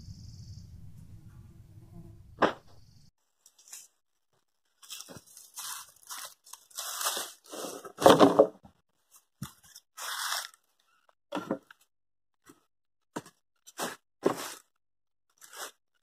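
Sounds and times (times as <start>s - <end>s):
dry leaf litter crunching: 4.8s - 7.9s, 10.0s - 10.6s.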